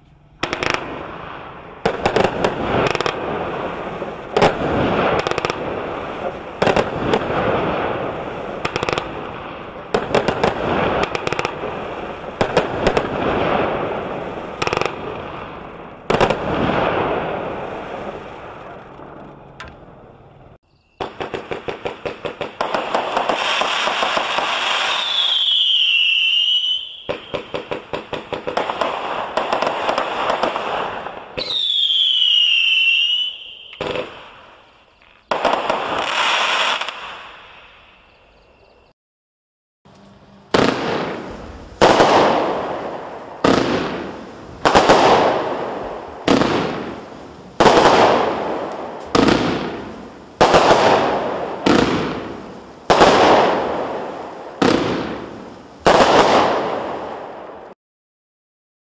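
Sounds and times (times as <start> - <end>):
firework launches and bursts: 0.4 - 19.0, 21.0 - 37.9, 40.5 - 57.8
falling firework whistles: 20.7 - 38.2.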